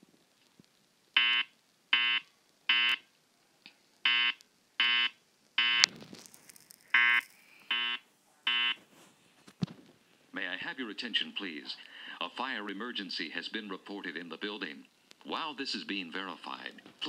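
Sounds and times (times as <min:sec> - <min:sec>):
fire alarm horn beeps: 0:01.2 - 0:03.0, 0:04.1 - 0:05.9, 0:07.0 - 0:08.8.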